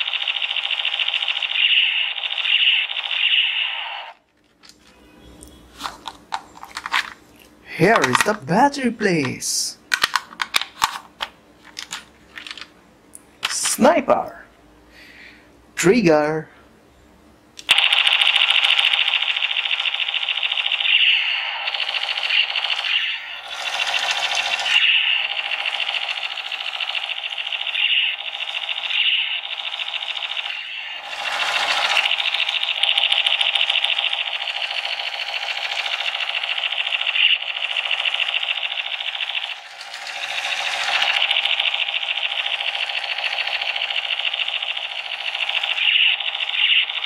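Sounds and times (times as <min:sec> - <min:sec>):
toy gun machine-gun sound effect: 0:00.0 - 0:04.2, 0:17.6 - 0:47.0.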